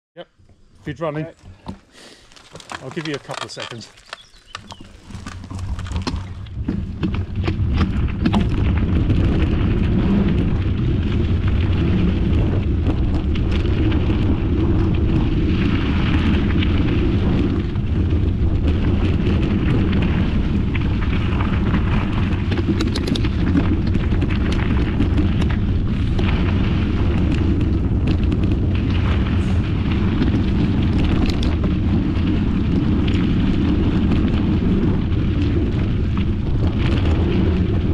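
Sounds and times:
bike rattles and knocks: 0:01.2 - 0:37.9
wind buffeting microphone: 0:02.6 - 0:37.9.

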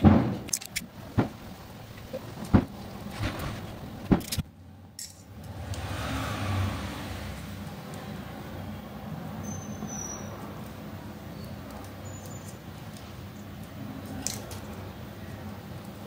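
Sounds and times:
steady low hum: 0:00.0 - 0:05.9.

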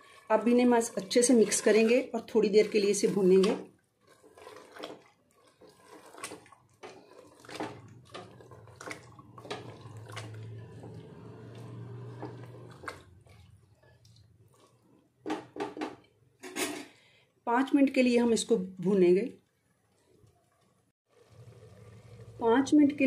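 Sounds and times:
spatula stirring thick food: 0:00.0 - 0:16.2.

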